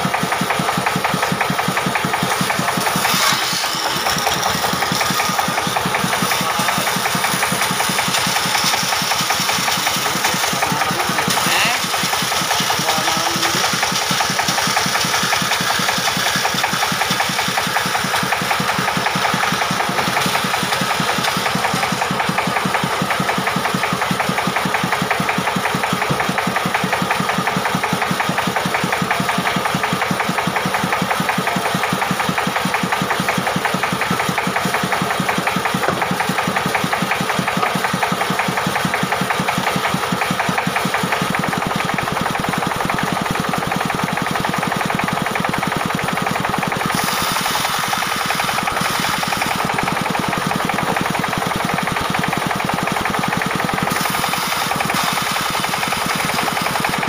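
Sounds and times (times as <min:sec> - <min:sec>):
diesel engine running: 0:00.0 - 0:57.0
band saw ripping a log: 0:02.3 - 0:12.8, 0:46.9 - 0:49.6.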